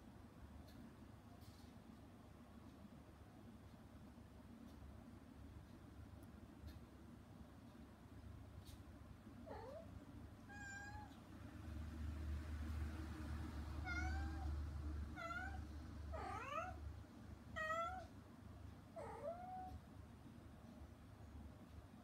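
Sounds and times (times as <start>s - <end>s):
cat meowing: 9.5s - 11.2s, 13.8s - 14.6s, 15.2s - 16.8s, 17.5s - 18.1s, 19.0s - 19.8s.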